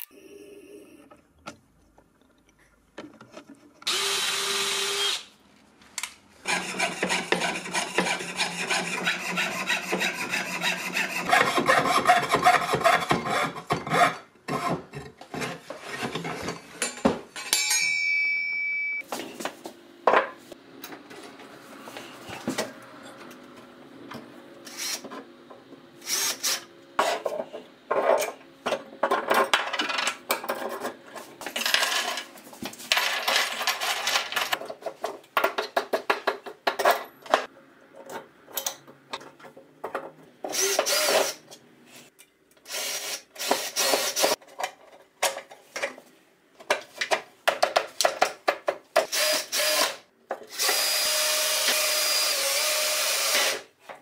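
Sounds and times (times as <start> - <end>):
cordless drill-driver bursts: 3.9 - 5.3, 26.0 - 26.6, 40.5 - 41.4, 42.7 - 44.4, 49.1 - 53.6.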